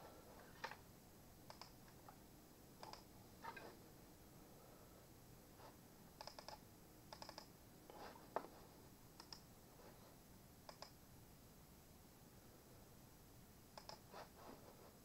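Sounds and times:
computer mouse clicks: 0:01.5 - 0:01.9, 0:02.8 - 0:03.6, 0:06.2 - 0:07.5, 0:09.2 - 0:09.5, 0:10.7 - 0:11.0, 0:13.8 - 0:14.1.

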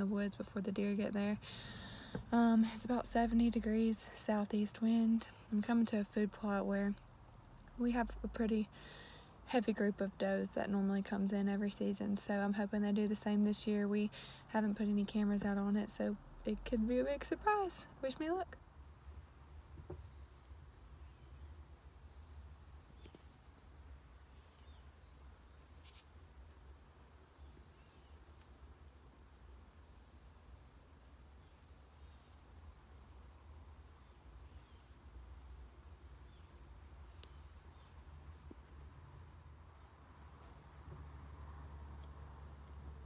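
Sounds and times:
crickets trilling: 0:18.6 - 0:43.0.

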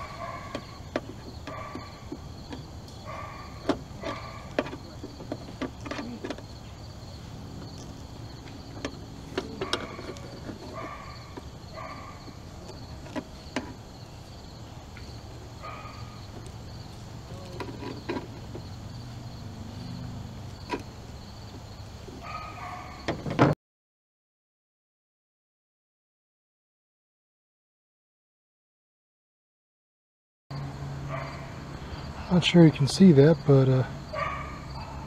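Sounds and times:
short squeaks: 0:00.0 - 0:06.8, 0:17.3 - 0:18.8
high insect drone: 0:00.0 - 0:23.4, 0:30.6 - 0:35.0
metal linkage clicking and scraping: 0:08.7 - 0:11.5.

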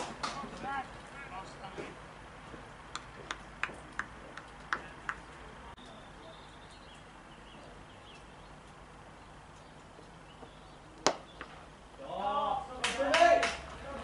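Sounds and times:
sharp hand claps: 0:02.9 - 0:05.2, 0:12.8 - 0:13.7.

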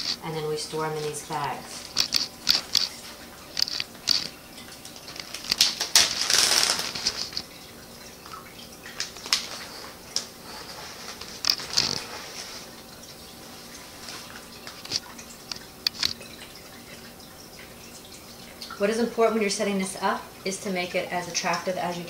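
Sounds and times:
plastic bag crinkling: 0:01.0 - 0:04.4, 0:05.0 - 0:07.5, 0:11.0 - 0:12.2.

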